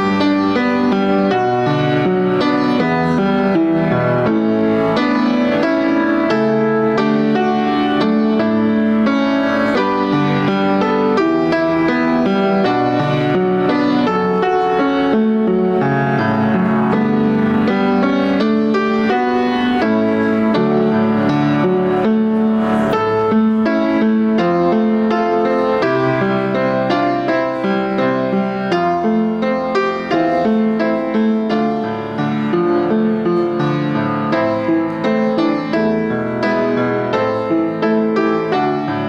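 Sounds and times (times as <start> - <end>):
instrumental keyboard music: 0.0 - 39.0.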